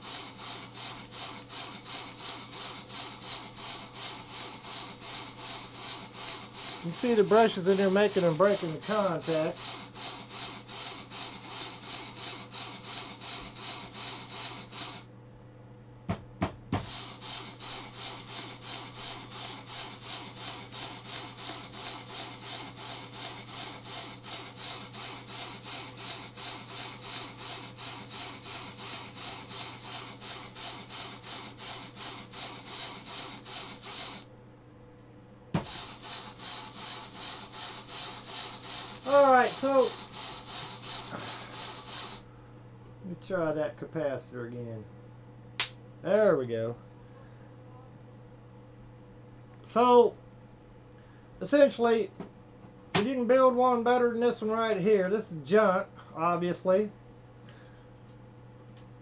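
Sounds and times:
rotary switch rasping and pulsing: 0.0s - 15.1s, 16.8s - 34.3s, 35.6s - 42.2s.

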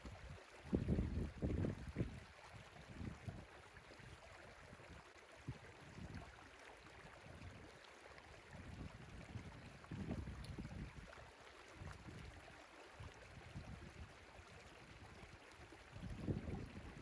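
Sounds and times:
wind buffeting microphone: 0.7s - 3.5s, 8.5s - 11.2s, 13.4s - 14.1s, 16.0s - 17.0s.

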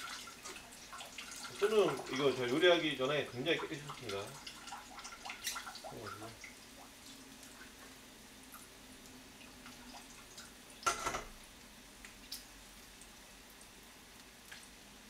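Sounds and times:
water dripping into sink: 3.3s - 7.9s, 12.0s - 12.6s, 14.2s - 14.7s.

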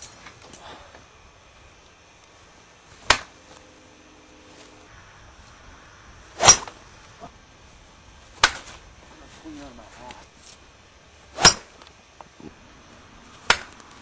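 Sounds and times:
faint low hum: 0.0s - 14.0s
sharp hits: 4.9s - 8.8s, 11.3s - 11.8s.

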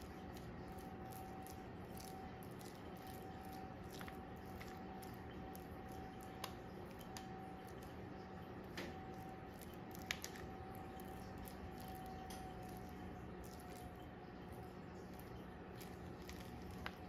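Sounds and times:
spatula squishing meat mixture: 0.0s - 17.0s
steady low hum: 0.0s - 17.0s.

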